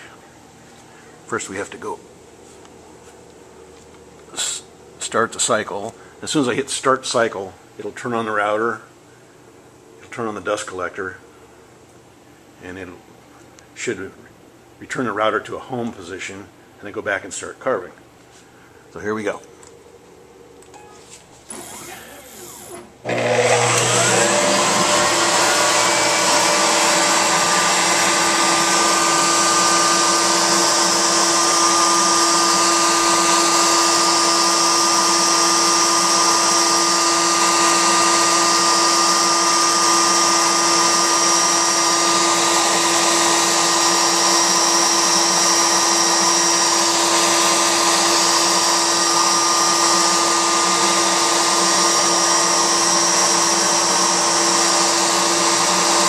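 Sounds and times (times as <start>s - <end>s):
wood router whining: 21.5s - 56.0s.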